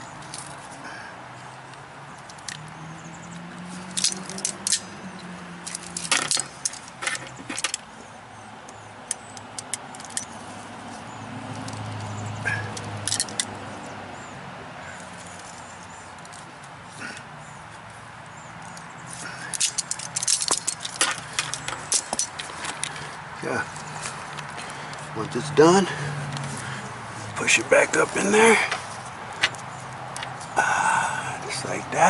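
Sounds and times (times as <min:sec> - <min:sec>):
metal tools clinking: 0:03.8 - 0:04.9, 0:05.6 - 0:07.8, 0:09.2 - 0:10.4, 0:12.5 - 0:13.6, 0:18.6 - 0:25.1.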